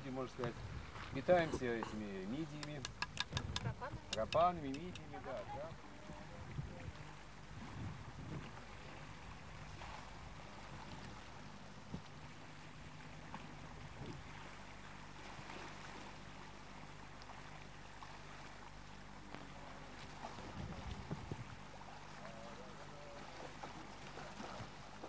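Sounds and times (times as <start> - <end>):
calm sea hiss: 0.0 - 2.7, 8.5 - 25.0
low steady hum: 0.0 - 25.0.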